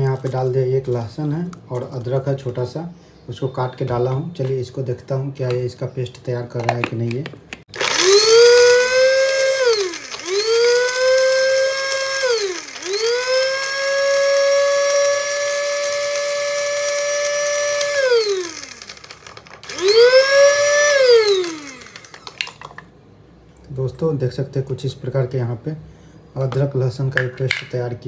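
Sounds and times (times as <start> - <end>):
spice grinder motor whining: 7.7 - 22.6.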